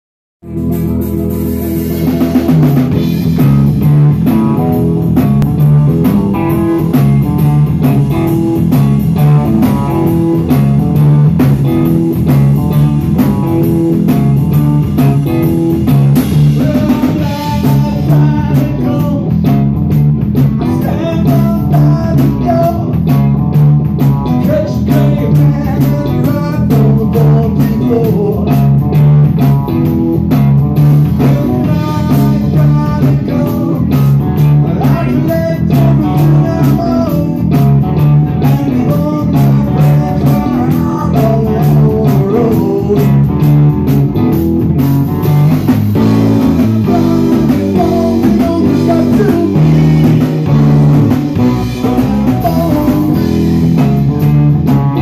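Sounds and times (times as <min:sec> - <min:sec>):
live blues-rock band: 0:00.4 - 0:55.0
person singing: 0:01.2 - 0:03.3, 0:16.4 - 0:19.6, 0:20.6 - 0:23.0, 0:24.3 - 0:28.7, 0:31.1 - 0:43.5, 0:46.0 - 0:53.8.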